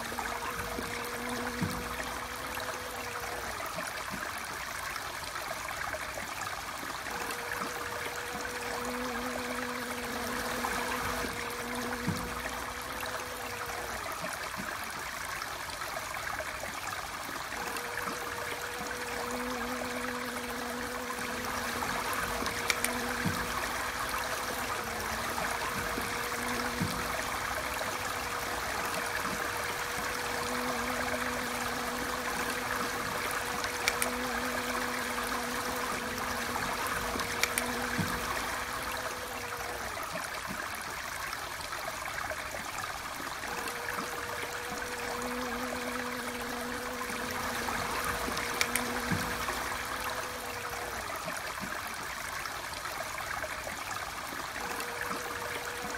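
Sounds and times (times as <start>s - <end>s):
bees buzzing: 0.0s - 14.7s, 16.6s - 40.6s, 43.3s - 51.7s, 54.5s - 55.9s
water rushing: 0.0s - 55.9s
faint clicks: 5.9s - 14.8s, 17.4s - 40.6s, 43.4s - 51.8s
low hum: 7.0s - 14.2s, 17.5s - 40.1s.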